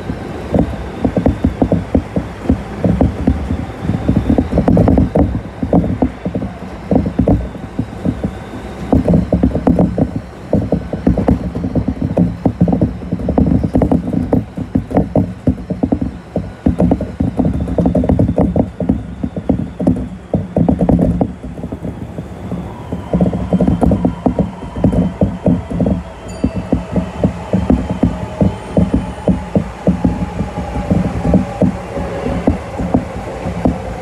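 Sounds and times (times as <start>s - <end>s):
car body creaking: 0.0s - 22.2s
low train rumble: 0.0s - 34.0s
train wheels clicking on rails: 0.0s - 34.0s.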